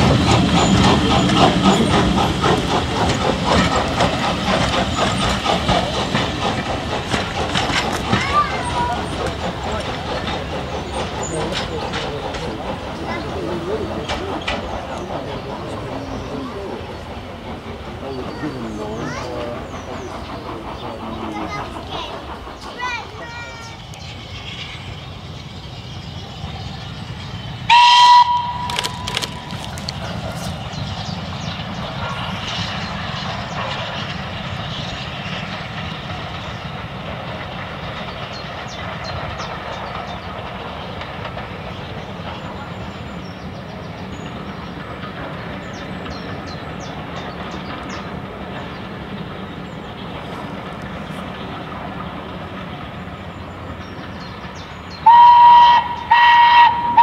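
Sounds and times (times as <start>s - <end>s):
steam train rumbling past: 0.0s - 57.0s
wheels clicking on track: 0.0s - 57.0s
steam whistle blast: 27.7s - 28.9s, 55.0s - 57.0s
steam whistle short toots: 27.7s - 28.9s, 55.1s - 57.0s.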